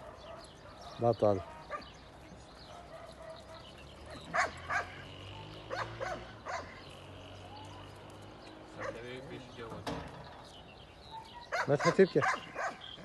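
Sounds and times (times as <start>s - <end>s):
dog barking: 0.0s - 2.0s, 2.6s - 8.0s, 8.7s - 9.1s, 11.0s - 13.0s.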